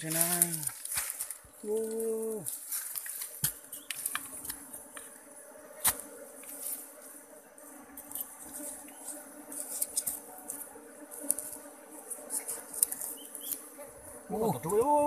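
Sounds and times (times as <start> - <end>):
small clicks and crackles: 0.0 - 5.1, 8.0 - 13.7
bees buzzing: 0.0 - 15.0.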